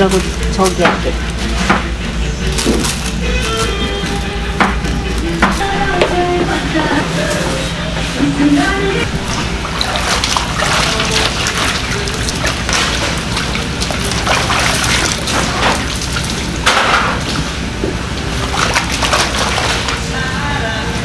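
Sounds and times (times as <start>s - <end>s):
water splashing in plastic basin: 9.0s - 17.5s, 18.2s - 20.2s.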